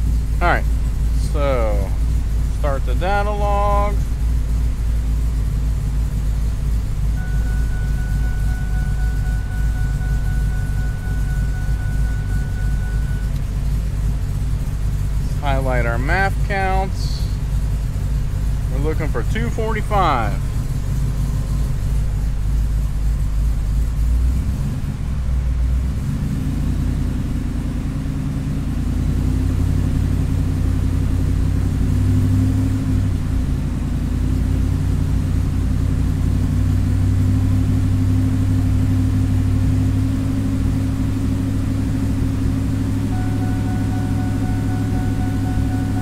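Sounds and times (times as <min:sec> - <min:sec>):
vee-eight engine idling: 0:00.0 - 0:46.0.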